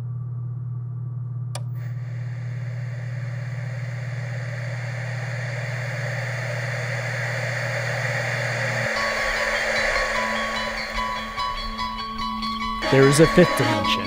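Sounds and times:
steady low hum: 0.0s - 14.0s
television switch click: 1.6s - 3.6s
static hiss: 1.6s - 14.0s.

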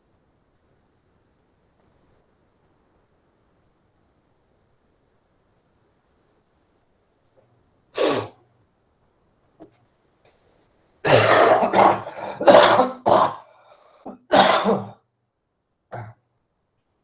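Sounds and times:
person coughing: 11.0s - 15.0s, 15.9s - 16.2s.

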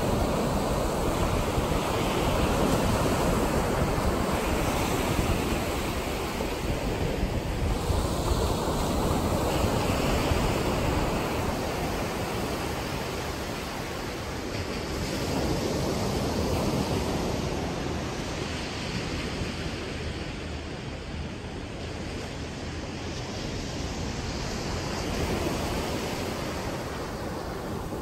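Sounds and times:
ocean surf breaking on shore: 0.0s - 28.0s
wind rumbling on microphone: 0.0s - 28.0s.

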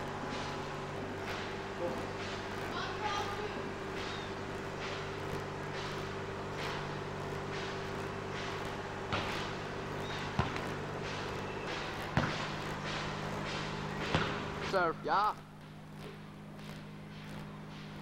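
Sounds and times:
steady hum: 0.0s - 18.0s
volleyball thudding on concrete: 9.0s - 9.5s, 10.3s - 14.8s.

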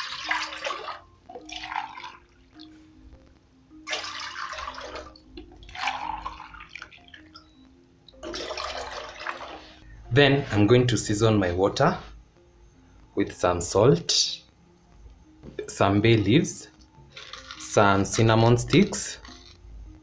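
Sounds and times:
water pouring into metal pot: 0.0s - 2.4s, 3.9s - 7.3s, 8.2s - 9.8s
soft background music: 0.0s - 20.0s.

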